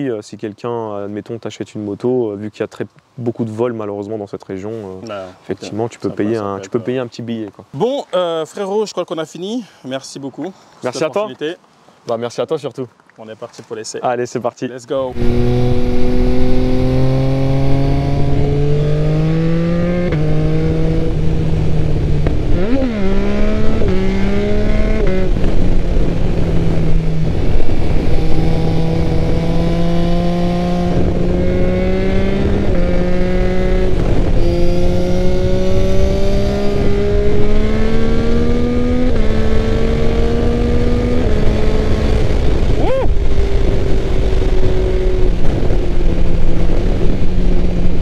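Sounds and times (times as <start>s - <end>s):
motorcycle engine accelerating: 15.1s - 48.0s.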